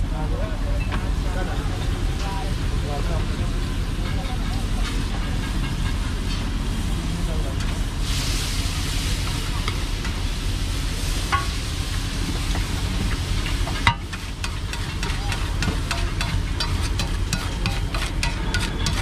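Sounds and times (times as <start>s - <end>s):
omelette sizzling: 7.3s - 19.0s
metal spatula scraping griddle: 13.4s - 19.0s.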